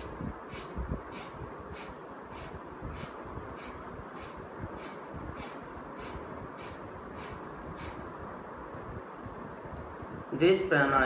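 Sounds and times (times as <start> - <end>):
forceful breaths through nose: 0.0 - 8.1.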